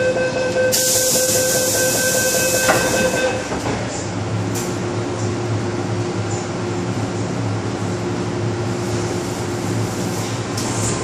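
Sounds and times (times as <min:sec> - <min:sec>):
high door-warning tone: 0:00.0 - 0:03.8
low hum of standing train: 0:00.0 - 0:11.0
train doors shutting knock: 0:01.8 - 0:04.0.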